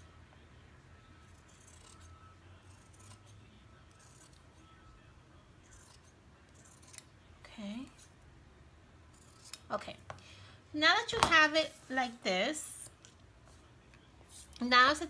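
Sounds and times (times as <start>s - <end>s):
scissors cutting fabric: 1.2s - 4.6s, 5.6s - 7.1s, 9.1s - 9.8s.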